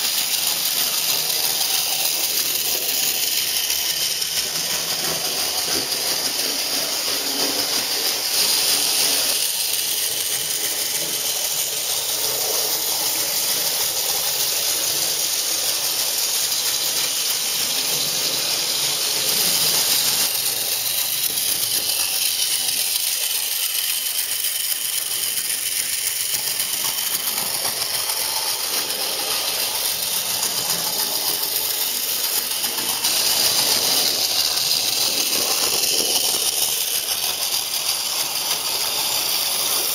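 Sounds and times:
model train motor whirring: 0:00.0 - 0:39.9
wheels rattling on track: 0:00.0 - 0:39.9.

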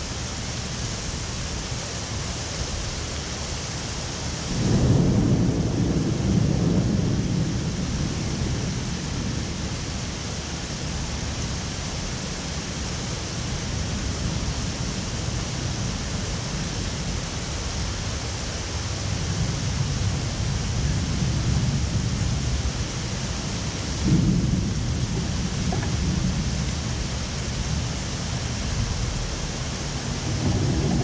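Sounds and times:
heavy rain hissing: 0:00.0 - 0:31.0
rolling thunder: 0:04.5 - 0:10.0, 0:19.0 - 0:31.0.

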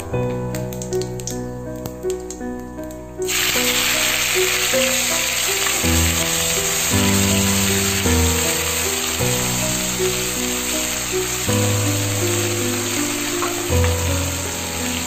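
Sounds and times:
background music: 0:00.0 - 0:15.0
onions sizzling in hot oil: 0:03.3 - 0:15.0.

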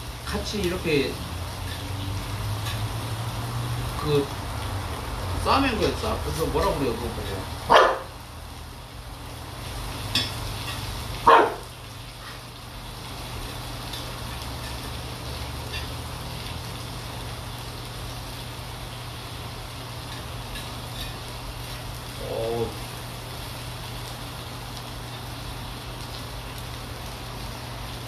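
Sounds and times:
dog barking: 0:07.7 - 0:08.1, 0:11.2 - 0:11.7.

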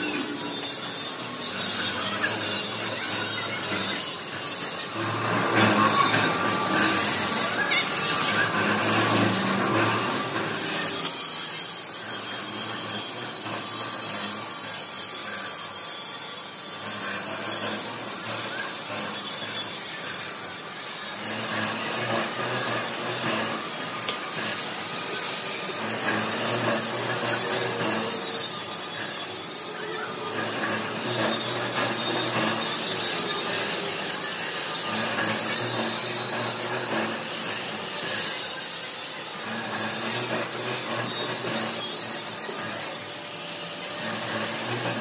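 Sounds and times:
machinery grinding: 0:00.0 - 0:45.0.

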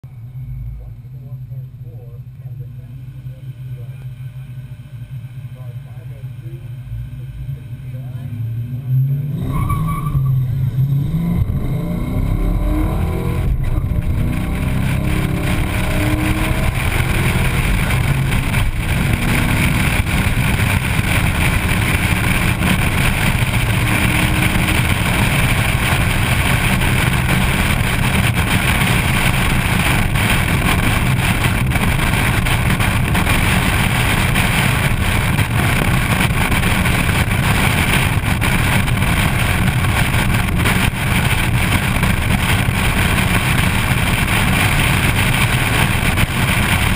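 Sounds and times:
car engine accelerating: 0:00.0 - 0:46.9
wind rushing on microphone: 0:09.5 - 0:46.9.

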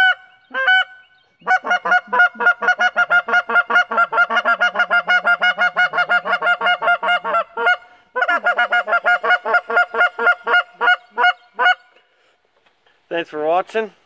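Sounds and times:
goose call honking: 0:00.0 - 0:11.9.

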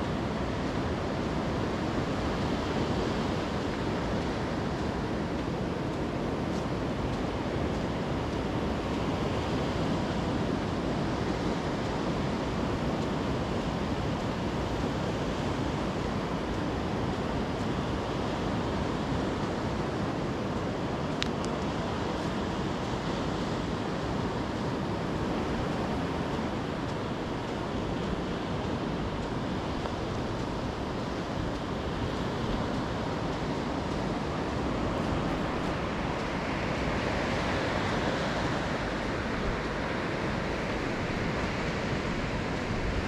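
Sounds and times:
sea surf: 0:00.0 - 0:43.0.

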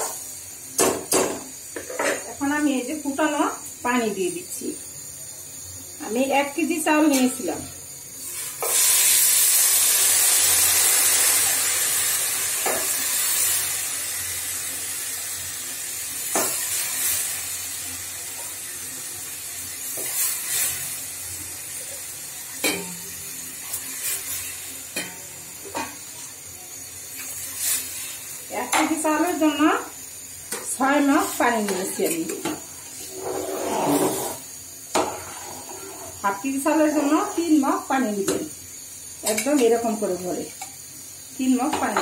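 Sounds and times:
water hissing in hot oil: 0:00.0 - 0:42.0.

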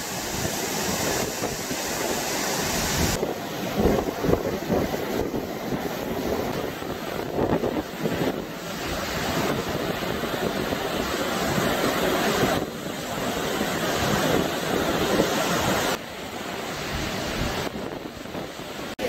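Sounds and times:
water rushing through dam spillway: 0:00.0 - 0:19.0.

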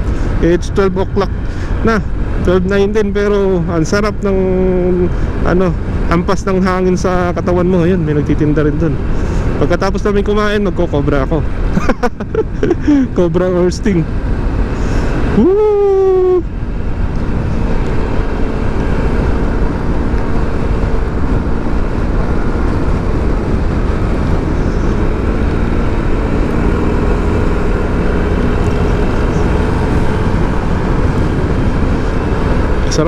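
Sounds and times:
motorcycle engine running: 0:00.0 - 0:33.0
wind buffeting microphone: 0:14.0 - 0:33.0.

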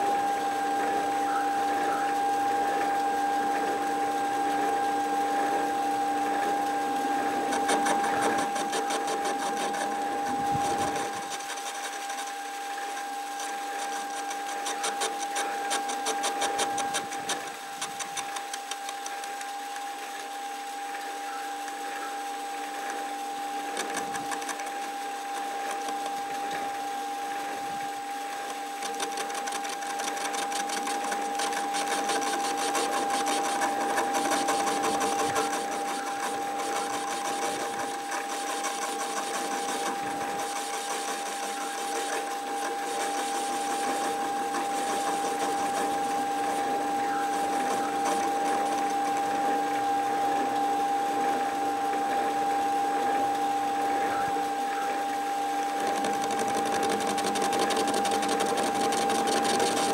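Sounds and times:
lathe motor whining: 0:00.0 - 0:59.9
cutting tool crackle: 0:55.8 - 0:59.9.

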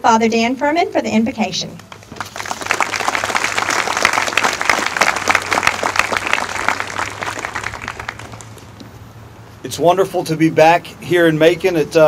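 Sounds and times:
audience applauding: 0:01.9 - 0:08.7.

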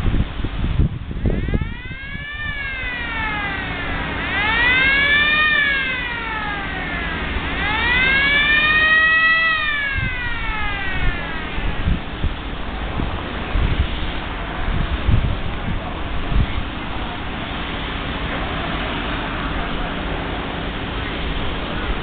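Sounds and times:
wind noise on microphone: 0:00.0 - 0:22.0
siren wailing: 0:01.2 - 0:12.2.

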